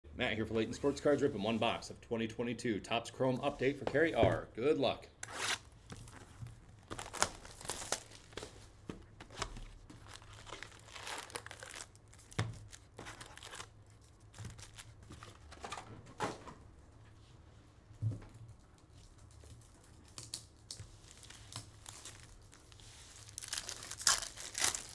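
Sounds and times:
foil packs crinkling: 0:06.0 - 0:08.6, 0:09.2 - 0:15.6, 0:19.6 - 0:24.9.

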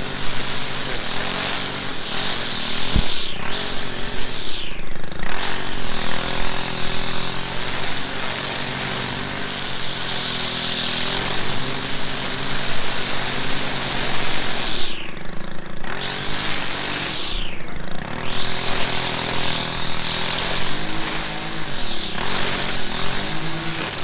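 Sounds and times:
string trimmer cutting weeds: 0:00.0 - 0:24.0.

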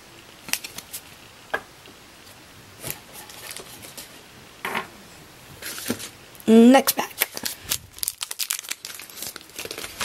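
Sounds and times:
cards and foil packs handled: 0:00.4 - 0:01.2, 0:02.8 - 0:04.2, 0:05.6 - 0:06.2, 0:06.8 - 0:10.0.

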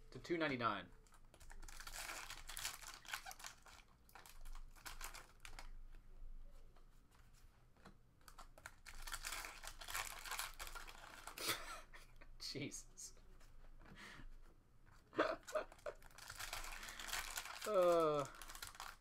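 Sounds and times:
foil pack tearing and crinkling: 0:01.5 - 0:05.7, 0:08.8 - 0:11.4, 0:15.8 - 0:19.0
cards rustling: 0:08.2 - 0:11.4, 0:15.6 - 0:19.0.

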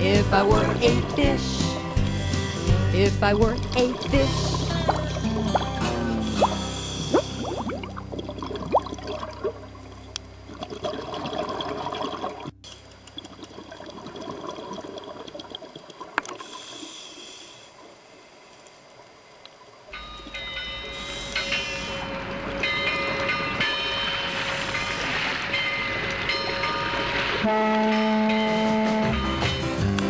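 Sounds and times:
underwater bubbles gurgling: 0:00.3 - 0:17.0
rising bubble chirps: 0:03.6 - 0:12.5.

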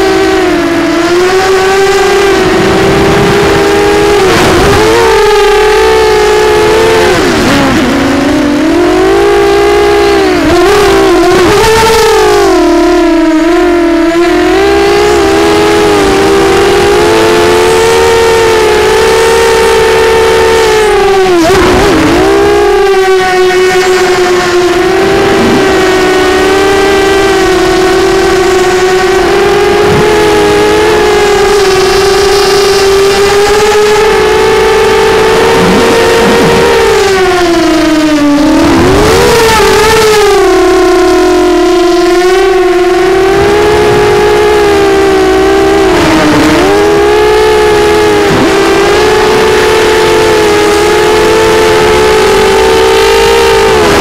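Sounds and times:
drone motors buzzing whine: 0:00.0 - 0:54.0.

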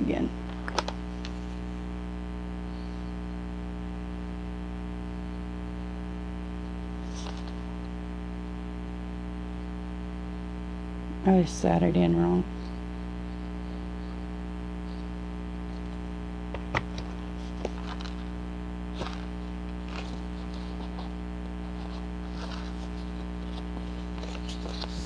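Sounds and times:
electrical mains hum: 0:00.0 - 0:25.0
paper rustling: 0:00.4 - 0:01.6, 0:07.0 - 0:07.7, 0:16.7 - 0:18.3, 0:18.9 - 0:25.0.

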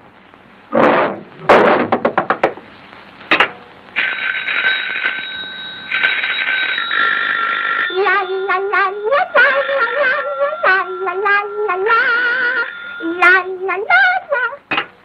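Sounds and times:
old telephone bell ringing: 0:04.0 - 0:13.7.

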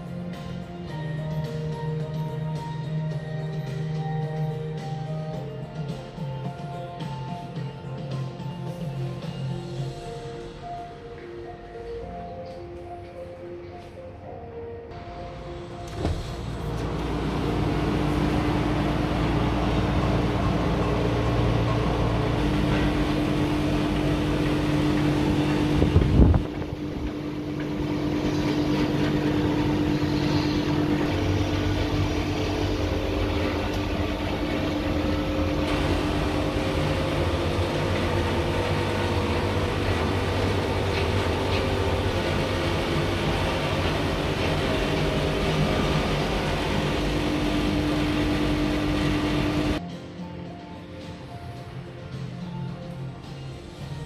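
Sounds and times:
balcony door opening: 0:15.6 - 0:18.5.

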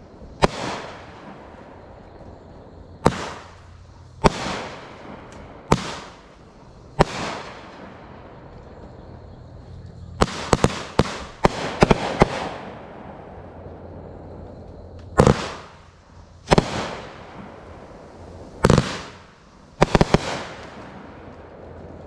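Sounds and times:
echoing firework booms: 0:00.0 - 0:22.0
firework bangs: 0:00.0 - 0:22.0.

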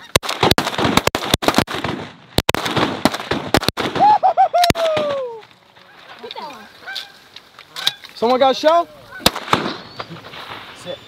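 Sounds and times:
shotgun shots: 0:00.0 - 0:04.1, 0:09.2 - 0:10.6.

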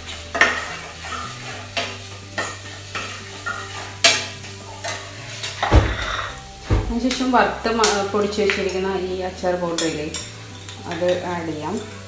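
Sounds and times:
spoon scraping metal frying pan: 0:00.0 - 0:07.2
spices sizzling in hot oil: 0:00.0 - 0:12.0.

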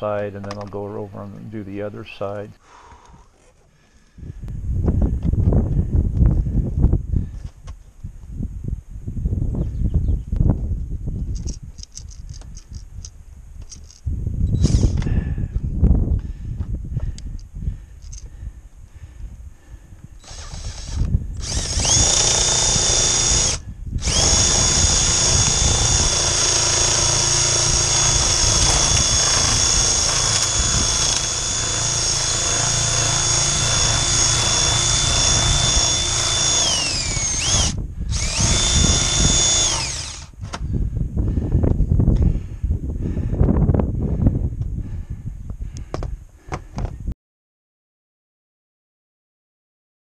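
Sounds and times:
power shears motor whine: 0:20.2 - 0:40.3.

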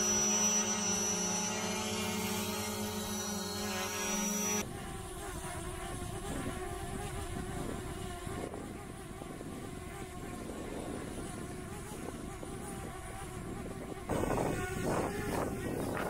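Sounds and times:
drone propeller whine: 0:00.0 - 0:04.8
small drone hovering: 0:00.0 - 0:16.0
wind rumbling on microphone: 0:04.6 - 0:16.0.

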